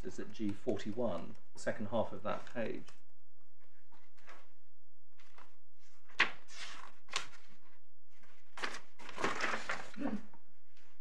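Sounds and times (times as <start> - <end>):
paper rustling: 3.6 - 4.5, 5.2 - 10.0.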